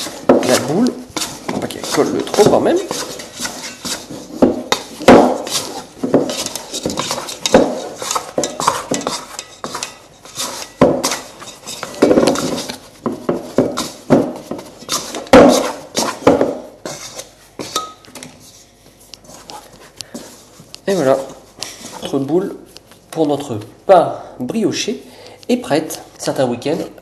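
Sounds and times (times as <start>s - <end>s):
dough scraper scraping metal bowl: 0.0s - 17.9s.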